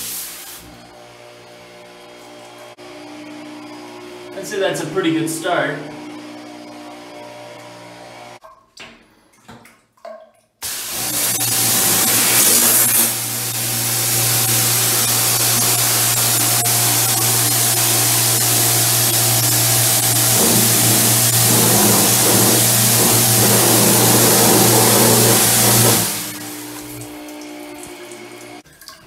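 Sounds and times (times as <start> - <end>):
pressure washer jet hissing: 0.0 - 0.6, 10.6 - 27.1
low hum: 11.4 - 27.5.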